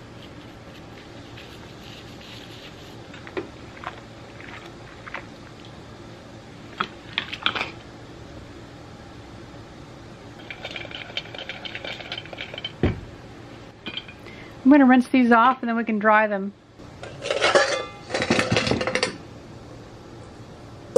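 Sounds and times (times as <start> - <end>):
steady low hum: 0.0 - 20.9
toothbrush scrubbing: 0.1 - 3.1
metal parts clinking in bowls: 17.1 - 19.2.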